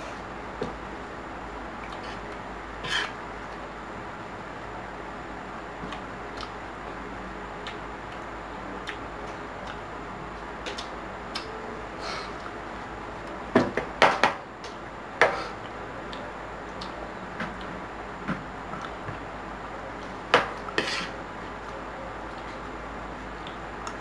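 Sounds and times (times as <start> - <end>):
cutlery scraping on a plate: 20.8 - 21.1.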